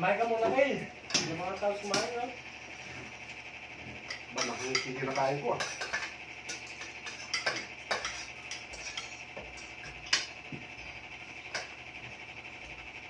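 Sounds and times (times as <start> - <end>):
metal utensils clinking on pot: 4.1 - 10.3.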